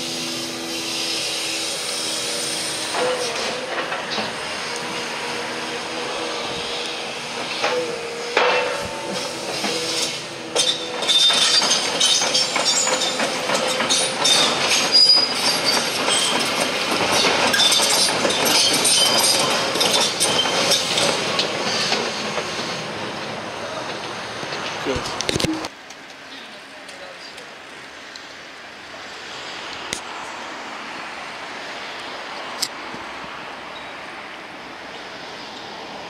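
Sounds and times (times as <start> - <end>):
metallic squeals and clinks of tracks: 0.0 - 25.7, 33.7 - 34.2.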